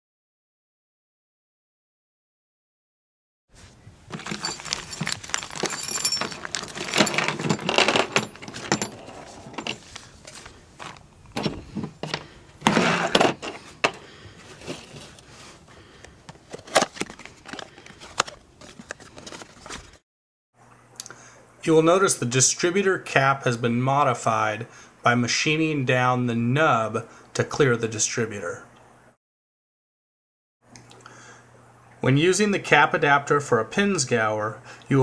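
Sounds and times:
rustling: 3.5 - 20.0
metal parts clinking on table: 4.1 - 9.8.

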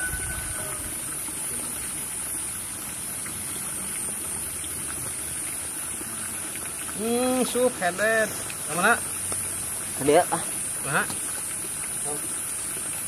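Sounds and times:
high-pitched insect drone: 0.0 - 2.2
rushing outdoor background noise: 0.0 - 13.0.

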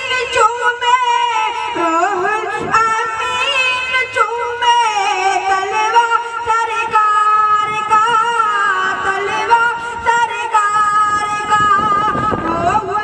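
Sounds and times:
boy singing into microphone: 0.0 - 13.0.

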